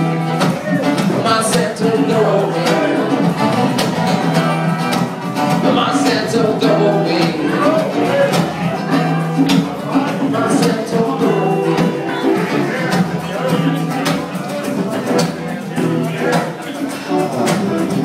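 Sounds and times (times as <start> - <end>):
acoustic band playing live: 0.0 - 18.0
strummed acoustic guitar: 0.0 - 18.0.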